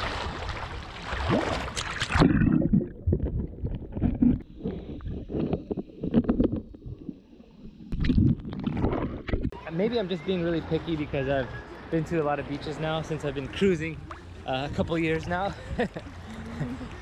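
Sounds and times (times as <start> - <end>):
water splashing: 0.0 - 9.4
muffled underwater churning: 0.0 - 9.6.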